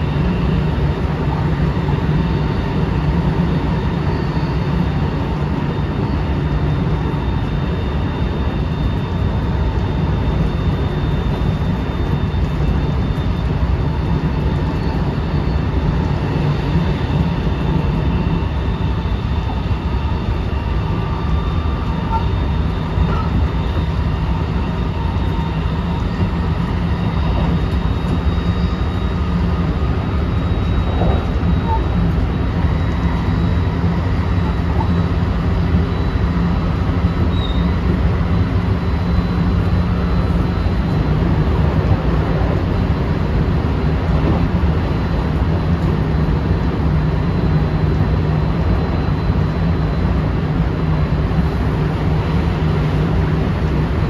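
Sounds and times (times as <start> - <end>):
high electric whine: 0.0 - 54.0
train wheels rumbling on rail: 19.2 - 54.0.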